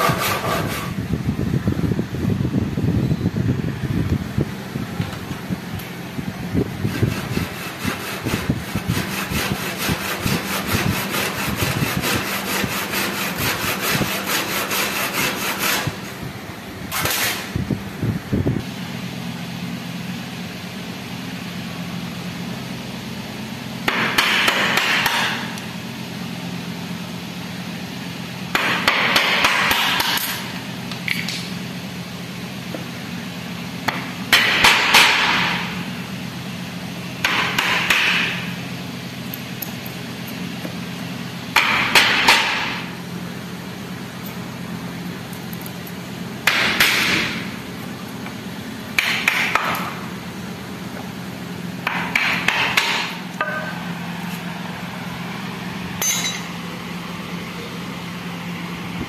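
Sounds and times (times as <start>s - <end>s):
hand tool cutting wood: 0.0s - 0.9s, 6.8s - 16.0s, 16.9s - 17.4s
scraping on wood: 0.0s - 1.0s, 6.8s - 16.0s.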